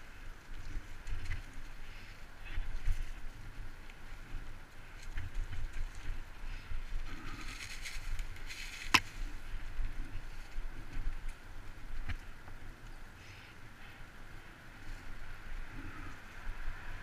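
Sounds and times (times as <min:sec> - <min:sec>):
bike rumbling on dirt trail: 0:00.0 - 0:17.0.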